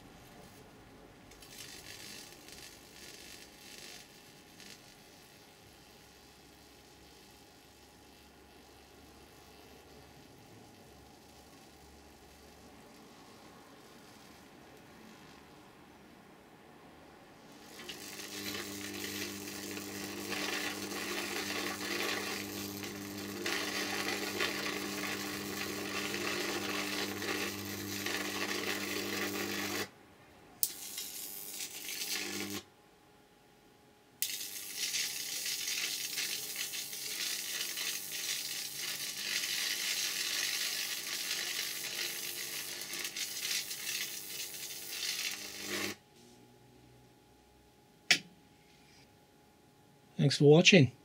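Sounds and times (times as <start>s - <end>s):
bug zapper arcing and sizzling: 1.3s - 5.0s, 17.6s - 29.9s, 30.6s - 32.7s, 34.2s - 46.0s.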